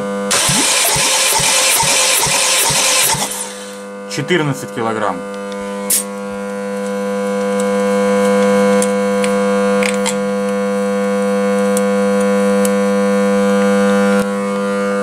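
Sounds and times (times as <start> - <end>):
steady hum with overtones: 0.0 - 8.0.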